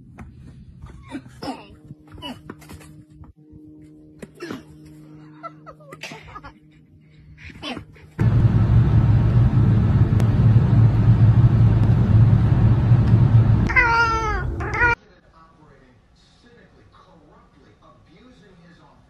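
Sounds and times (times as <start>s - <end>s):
loud steady low rumble: 8.2s - 14.9s.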